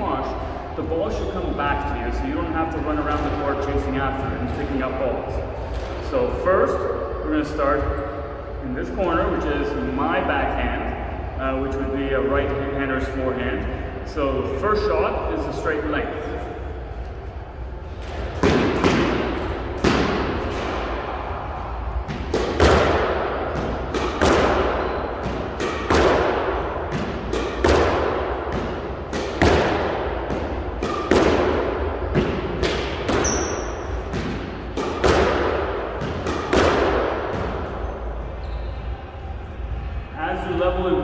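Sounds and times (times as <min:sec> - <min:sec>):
squash racket hitting ball: 0:17.8 - 0:38.4.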